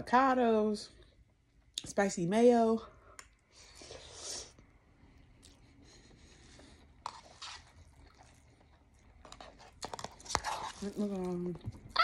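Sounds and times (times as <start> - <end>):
person slurping and chewing noodles: 5.2 - 11.4.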